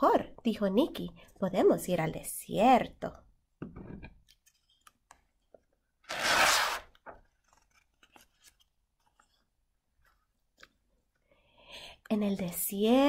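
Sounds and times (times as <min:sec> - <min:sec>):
paper page turning swish: 0:06.1 - 0:08.7.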